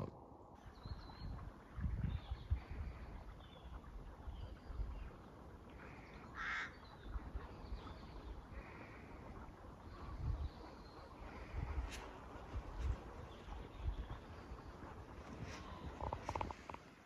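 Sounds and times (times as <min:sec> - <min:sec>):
crows cawing: 0:05.8 - 0:06.8, 0:08.6 - 0:09.2.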